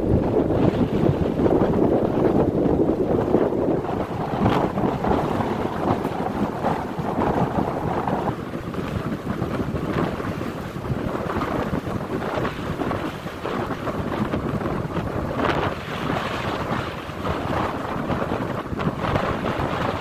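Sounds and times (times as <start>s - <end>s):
waves washing on shore: 0.0s - 20.0s
wind gusting over microphone: 0.0s - 20.0s.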